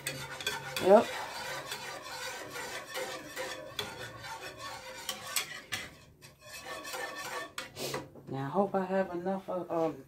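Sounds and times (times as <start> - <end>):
whisk scraping a pan: 0.0 - 8.1.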